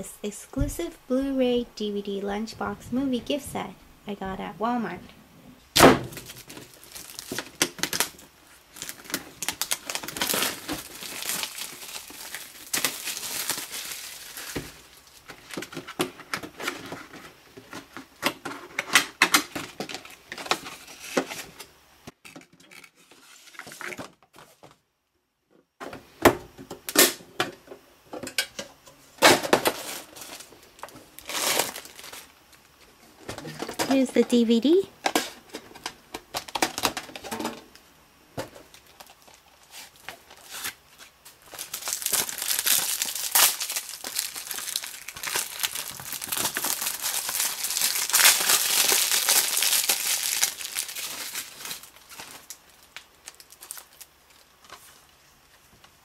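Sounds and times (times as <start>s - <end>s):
plastic shrink wrap tearing: 6.0s - 17.2s, 29.2s - 32.3s, 38.7s - 55.0s
plastic bag crinkling: 6.1s - 17.3s, 29.7s - 32.6s, 38.6s - 55.2s.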